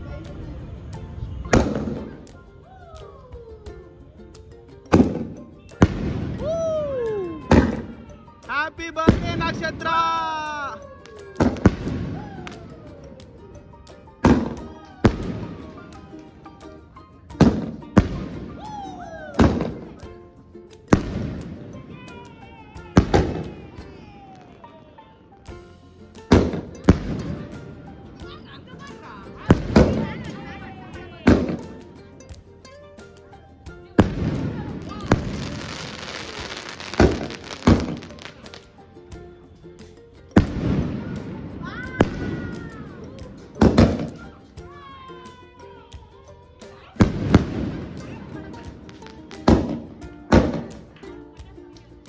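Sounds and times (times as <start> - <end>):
firework shells bursting with bangs: 4.8 - 8.3, 9.1 - 10.0, 10.8 - 16.5, 17.3 - 18.6, 20.8 - 24.6, 25.5 - 28.2, 29.4 - 32.4, 34.0 - 38.8, 40.3 - 44.3, 47.0 - 51.0
firework bangs: 9.1 - 9.9, 11.0 - 12.8, 34.0 - 38.6
crackling hiss of burning stars: 34.0 - 38.8.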